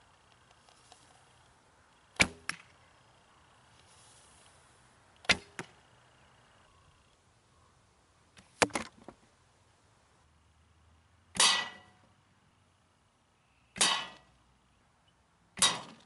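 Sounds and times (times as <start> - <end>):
arrows smacking target: 2.2 - 2.7, 5.3 - 5.7, 8.6 - 9.1, 11.4 - 11.9, 13.8 - 14.3, 15.6 - 16.0
bow snapping: 2.2 - 2.7, 5.2 - 5.7, 15.6 - 16.0.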